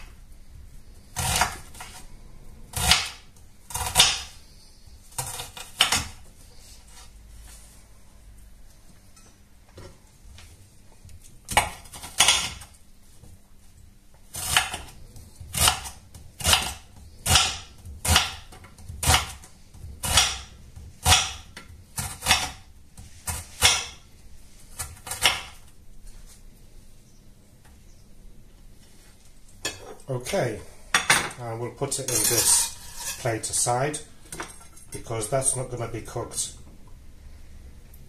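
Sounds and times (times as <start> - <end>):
knife chopping on cutting board: 14.3 - 22.6.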